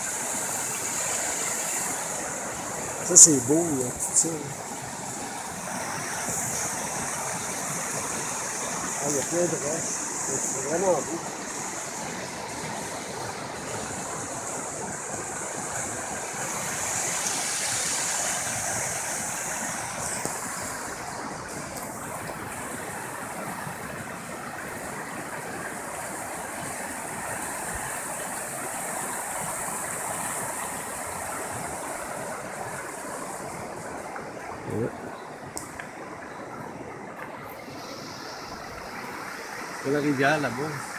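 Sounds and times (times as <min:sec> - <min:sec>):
river rapids rushing over rocks: 0:00.0 - 0:40.9.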